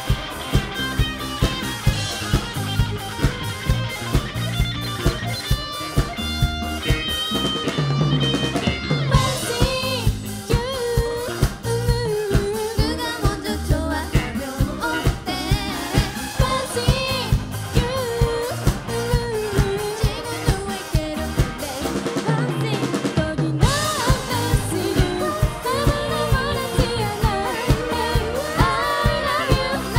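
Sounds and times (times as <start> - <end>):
bass: 0.0 - 29.9
drum kit beat: 0.0 - 29.9
guitar: 0.0 - 29.9
person singing lead vocal: 9.1 - 29.9.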